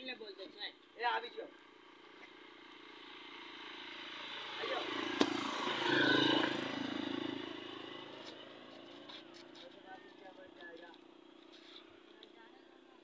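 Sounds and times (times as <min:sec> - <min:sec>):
vehicle passing: 0:01.9 - 0:13.0.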